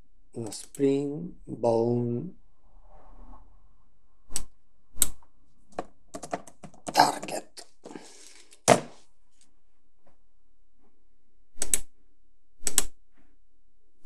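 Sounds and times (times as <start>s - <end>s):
keyboard keys clicking: 6.2s - 7.4s.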